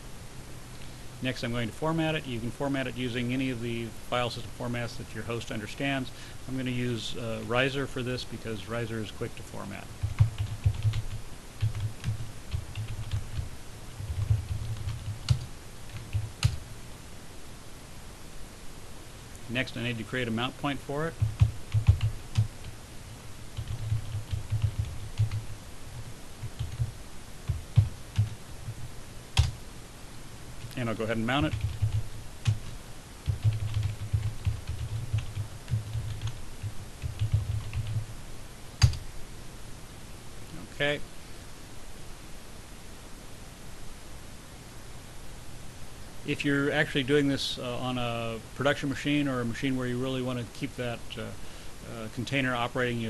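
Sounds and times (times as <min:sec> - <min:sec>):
computer keyboard typing: 0:10.0 - 0:16.6, 0:21.2 - 0:22.5, 0:23.6 - 0:25.5, 0:26.4 - 0:28.8, 0:29.4 - 0:29.6, 0:31.4 - 0:38.1, 0:38.8 - 0:39.0
keyboard typing clicks: 0:38.8 - 0:39.0.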